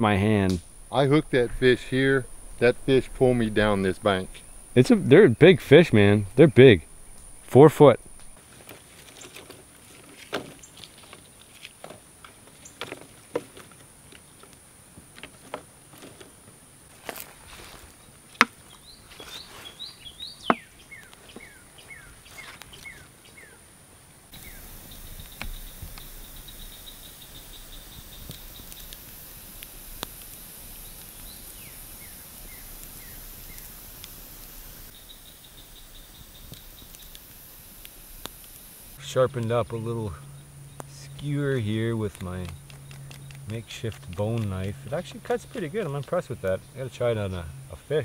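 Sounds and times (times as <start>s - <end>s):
high insect buzz: 0.0s - 8.4s, 24.3s - 39.0s
pulsing insect drone: 0.0s - 8.4s, 24.3s - 39.0s
wooden sticks clicking on coals: 24.4s - 34.9s, 35.5s - 38.7s, 42.0s - 46.3s.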